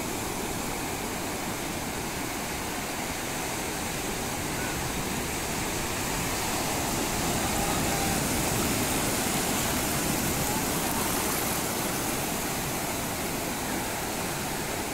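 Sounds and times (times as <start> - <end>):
surf breaking on beach: 3.3 - 14.9.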